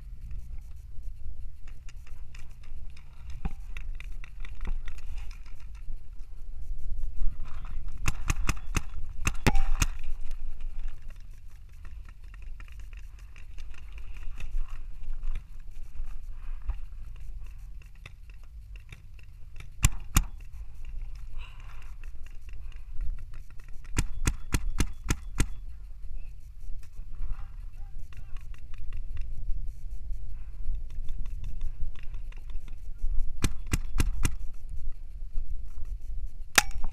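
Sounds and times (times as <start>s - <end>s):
low wind rumble: 0.0s - 36.9s
paintball markers popping: 1.6s - 6.0s, 7.9s - 25.8s, 30.7s - 34.6s.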